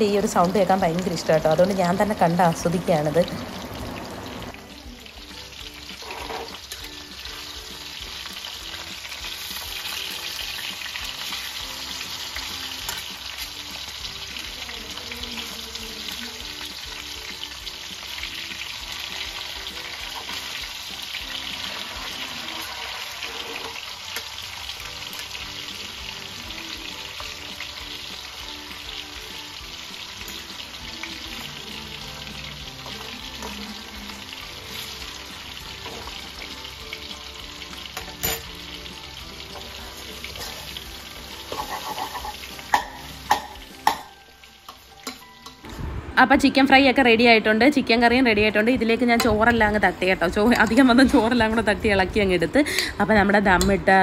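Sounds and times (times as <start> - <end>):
chicken sizzling in oil: 0.0 - 45.7
soft music: 0.0 - 54.0
fork scraping pan: 5.9 - 7.0, 21.6 - 24.3, 41.5 - 42.5.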